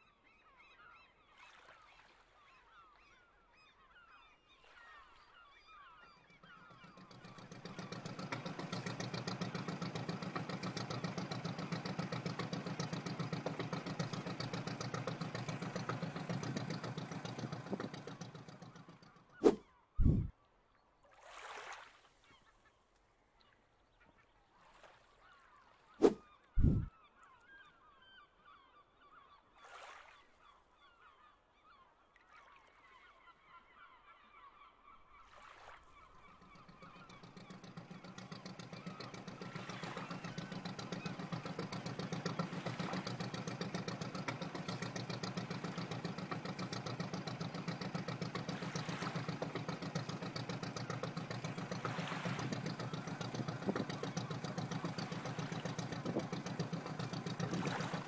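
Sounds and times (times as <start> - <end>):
low pulsing engine rumble: 5.8 - 20.3, 26.0 - 26.9, 36.0 - 58.0.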